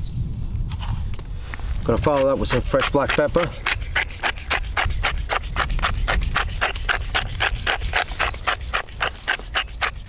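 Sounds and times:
pepper mill grinding: 2.1 - 10.0.

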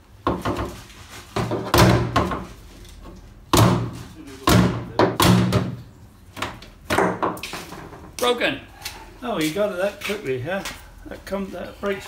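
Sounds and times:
hammer knocking on plastic: 3.5 - 5.8.

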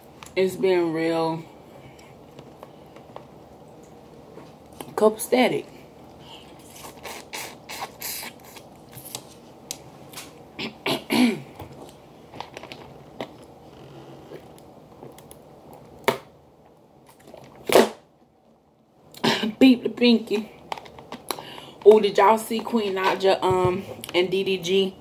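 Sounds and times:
close-up eating sounds: 5.8 - 10.9
sharp drinking sounds: 6.6 - 8.7.

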